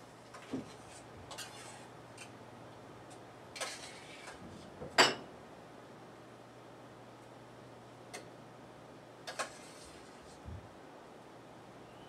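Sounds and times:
spoon scraping a metal pot: 1.3s - 1.8s.

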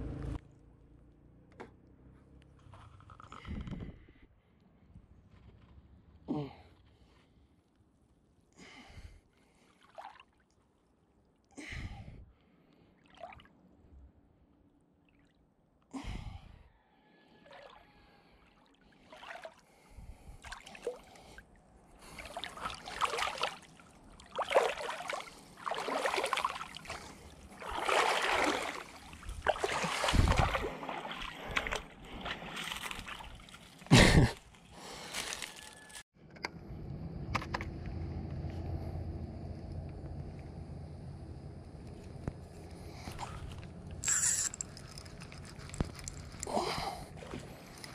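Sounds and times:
person breathing: 8.6s - 9.8s, 11.6s - 12.9s, 15.9s - 22.5s, 34.7s - 35.6s, 46.3s - 47.9s
water sloshing and splashing: 9.5s - 11.4s, 12.9s - 13.8s, 17.3s - 36.0s, 42.7s - 47.9s.

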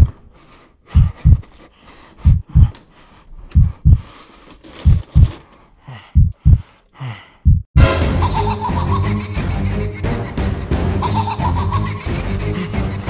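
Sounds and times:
heartbeat thumps: 0.9s - 1.5s, 2.2s - 2.8s, 3.5s - 4.1s, 4.9s - 5.4s, 6.2s - 6.7s, 7.4s - 7.8s.

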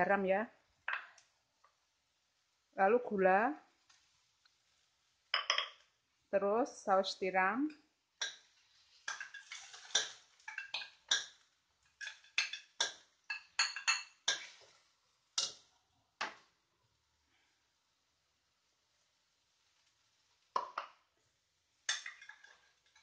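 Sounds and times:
metal spoon clinking on dish: 12.0s - 14.5s.

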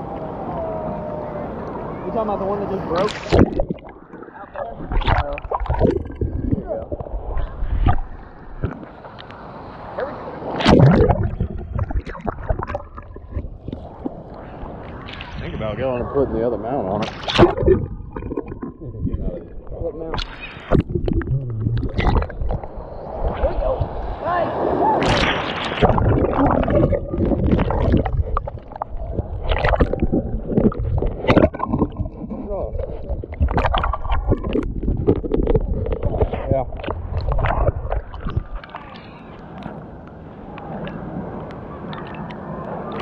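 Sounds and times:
muffled underwater surf churning: 0.0s - 43.0s
ocean wave rushing: 0.0s - 43.0s
water splashing against lens: 2.9s - 8.9s, 17.0s - 23.5s, 25.0s - 39.7s
bubbles clicking and popping: 3.0s - 4.3s, 4.9s - 7.2s, 10.7s - 14.2s, 17.0s - 22.7s, 25.8s - 38.7s.

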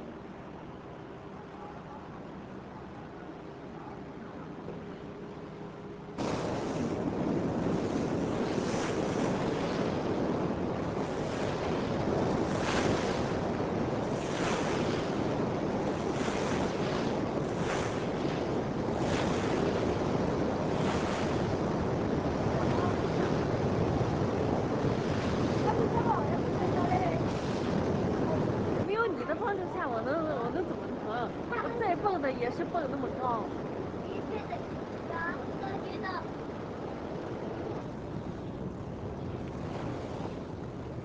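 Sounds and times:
wind buffeting microphone: 0.0s - 41.0s
water swishing: 5.0s - 33.5s
rushing water: 6.2s - 38.2s.

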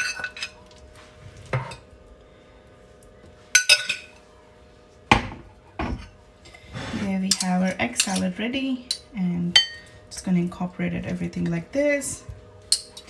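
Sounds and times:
spoon clinking on ceramic bowls: 3.6s - 4.2s, 12.7s - 13.0s.

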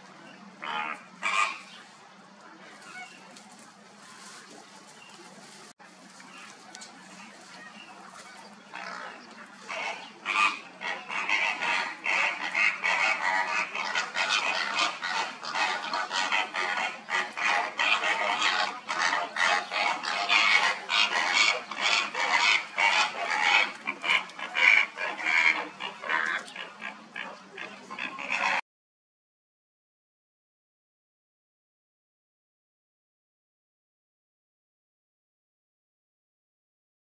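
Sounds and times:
harsh water-bird calls: 0.3s - 1.9s, 7.1s - 28.6s.

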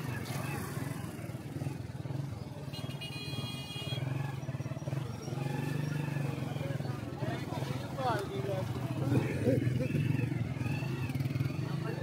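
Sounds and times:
motorcycle engine running: 8.6s - 12.0s.

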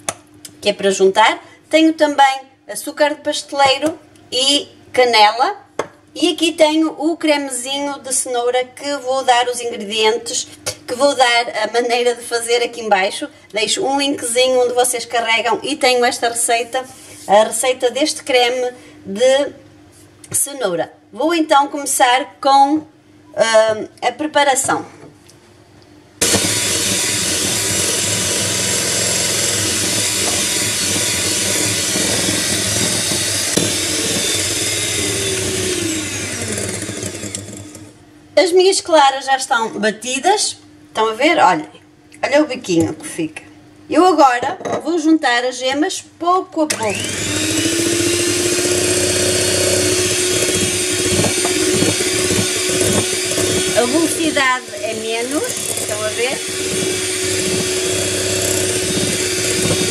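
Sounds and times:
electric hand mixer running: 26.2s - 38.0s, 46.7s - 59.9s.

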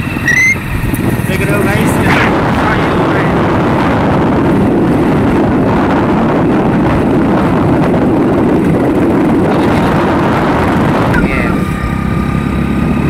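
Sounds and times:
vehicle engine and road noise: 0.0s - 13.0s
wind rushing on microphone: 0.0s - 13.0s.

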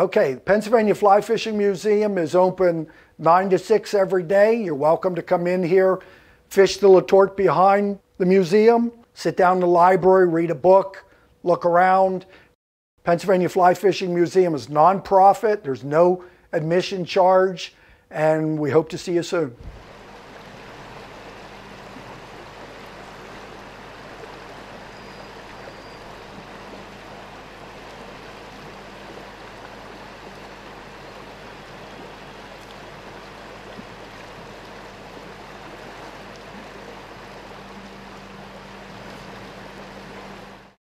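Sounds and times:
stream water flowing: 19.6s - 40.8s.

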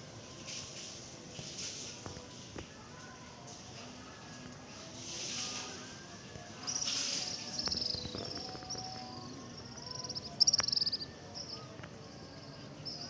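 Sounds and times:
small birds twittering: 6.6s - 13.0s.

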